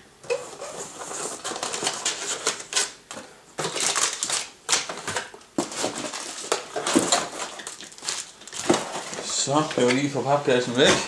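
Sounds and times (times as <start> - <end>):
cardboard rustling and scraping: 0.3 - 2.9, 4.9 - 11.0.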